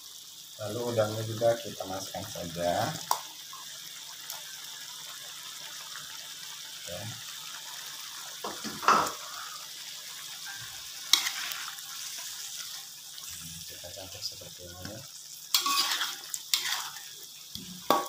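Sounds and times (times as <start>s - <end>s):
shrimp sizzling in hot oil: 0.0s - 18.0s
stirring in a wok: 10.4s - 13.1s, 15.0s - 18.0s.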